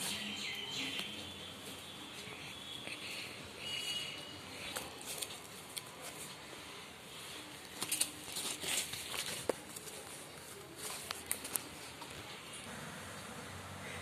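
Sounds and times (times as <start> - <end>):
cardboard and paper rustling: 4.6 - 6.4, 7.4 - 12.3.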